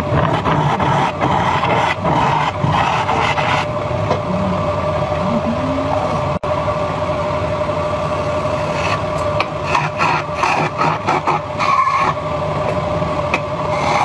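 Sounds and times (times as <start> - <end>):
turning tool scraping wood: 0.1 - 3.7.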